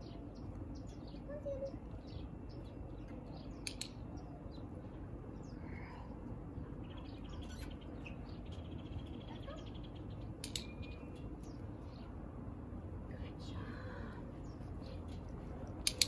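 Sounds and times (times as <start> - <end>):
low background rumble: 0.0 - 16.0
small birds chirping: 0.0 - 16.0
sharp clicks: 3.5 - 4.1, 10.4 - 11.6, 15.6 - 16.0.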